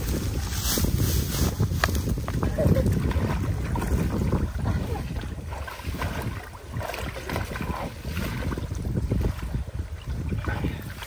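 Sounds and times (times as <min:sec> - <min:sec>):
wind rumble on microphone: 0:00.0 - 0:11.0
water sloshing and splashing: 0:02.4 - 0:11.0.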